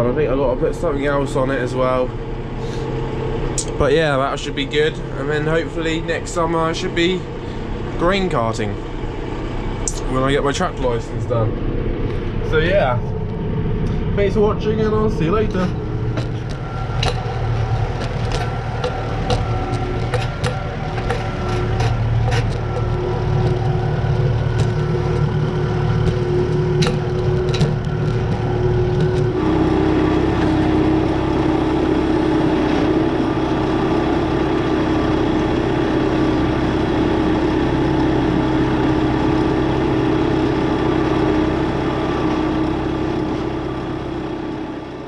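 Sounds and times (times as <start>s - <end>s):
tractor diesel engine running: 0.0s - 45.0s.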